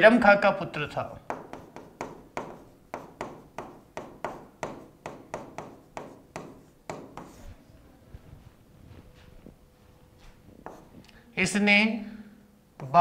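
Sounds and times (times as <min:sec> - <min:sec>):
pen tapping and scraping on board: 0:01.2 - 0:07.5, 0:10.6 - 0:11.0.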